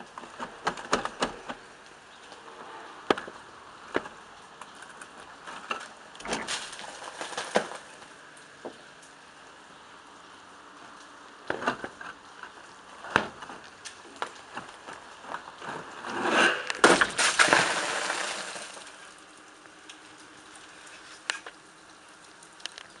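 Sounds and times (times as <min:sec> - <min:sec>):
ice crackling and clinking: 0:04.6 - 0:08.2, 0:15.6 - 0:19.2
ice cracking: 0:05.7 - 0:08.2, 0:15.6 - 0:19.2.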